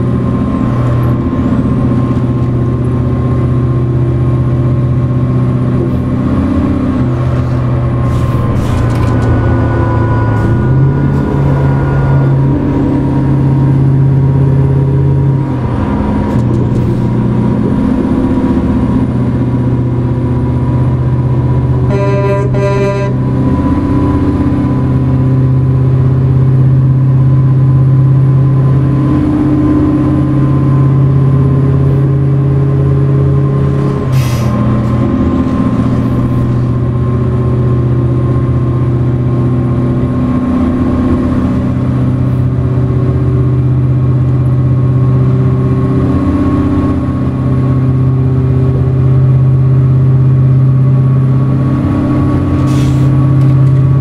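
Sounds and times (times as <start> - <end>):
diesel truck engine droning: 0.0 - 54.0.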